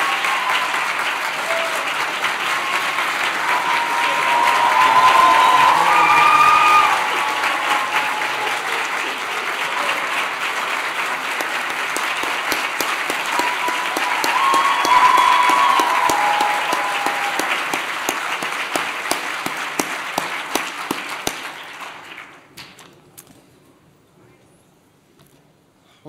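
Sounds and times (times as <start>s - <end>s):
audience applauding: 0.0s - 22.8s.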